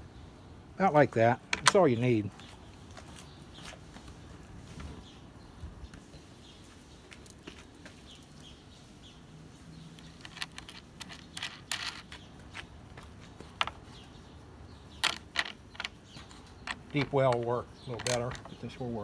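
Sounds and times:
metallic clicks and clinks: 10.0s - 12.7s.

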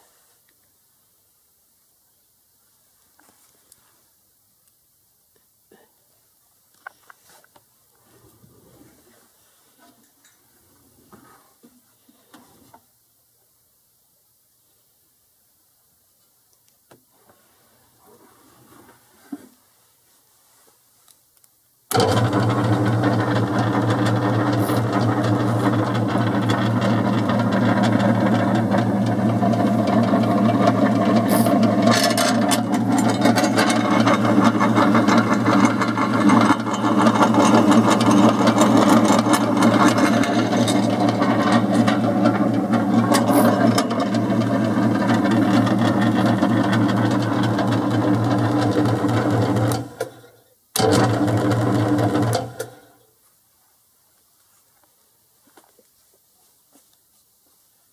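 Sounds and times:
vegetable cutter motor humming: 21.9s - 50.2s, 50.8s - 52.8s.

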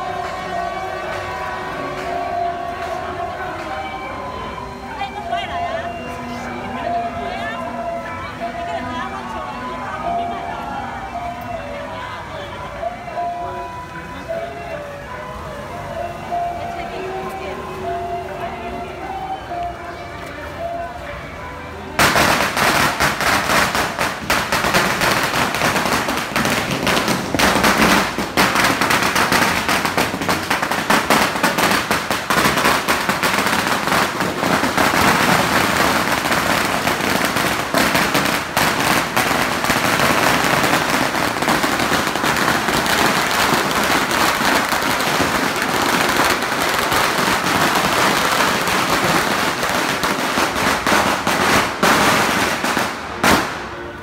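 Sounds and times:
firecrackers popping: 22.0s - 54.0s.

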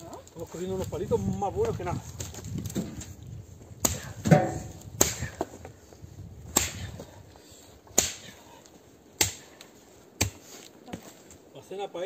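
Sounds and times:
chopping blows on wood: 3.8s - 5.5s, 6.4s - 7.1s, 7.9s - 8.4s, 9.2s - 9.6s, 10.2s - 10.5s.

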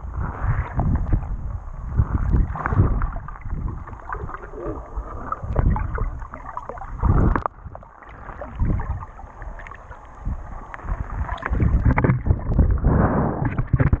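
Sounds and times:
muffled underwater water rushing: 0.0s - 14.0s
scattered crackles: 10.6s - 14.0s.

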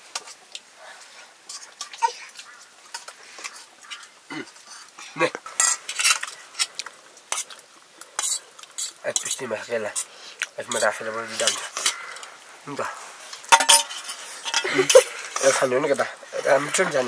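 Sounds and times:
utensils clinking on metal dishes: 5.6s - 6.7s, 13.5s - 15.6s.

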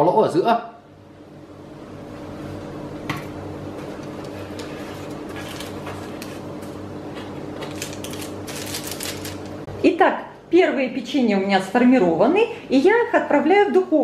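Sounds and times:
steady mechanical hum: 0.0s - 14.0s
dough handling clicks and rustles: 3.8s - 9.7s.

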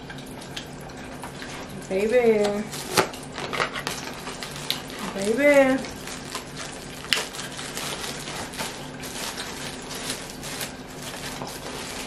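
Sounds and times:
plastic wrapper crinkling: 2.7s - 12.0s.

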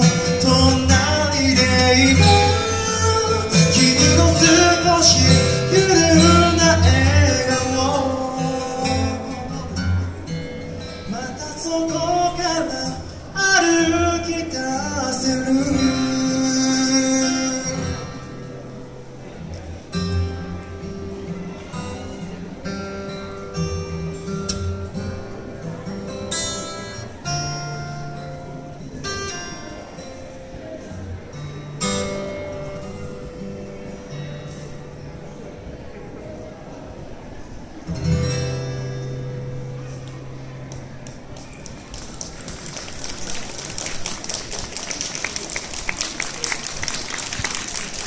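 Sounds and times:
acoustic guitar through pa: 0.0s - 48.0s
audience applause: 41.3s - 48.0s.

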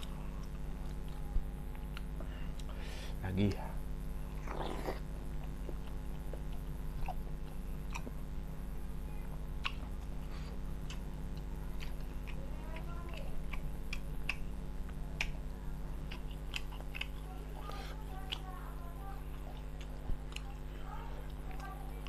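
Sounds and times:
man chewing and lip-smacking: 0.0s - 2.8s, 4.3s - 8.4s, 9.1s - 18.5s, 19.2s - 20.6s
steady low hum: 0.0s - 22.0s
wet mouth clicks: 4.4s - 8.2s, 9.6s - 10.0s, 10.8s - 14.5s, 16.1s - 17.2s.

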